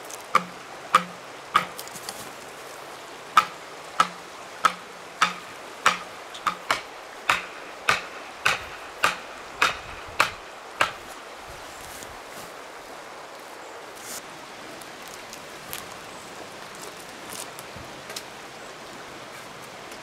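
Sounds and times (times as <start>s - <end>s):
hatchet striking wooden stake: 0.3s - 1.9s, 3.4s - 11.1s.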